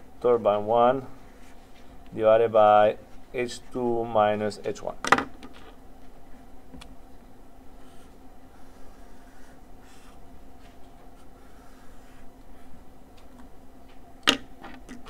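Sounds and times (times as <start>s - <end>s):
faint steady hum: 0.0s - 15.0s
marker scratching on paper: 7.8s - 10.2s, 11.1s - 12.7s.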